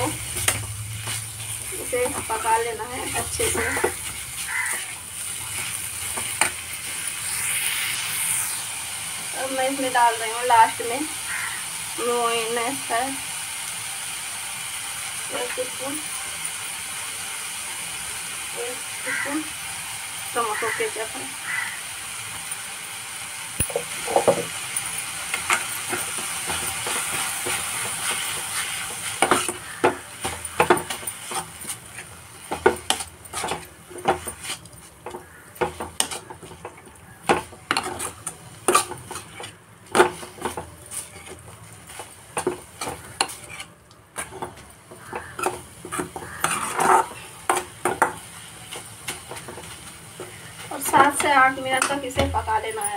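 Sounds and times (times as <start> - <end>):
mince sizzling in a pan: 0.0 - 52.9
metal spoon scraping a metal pan: 25.3 - 49.7.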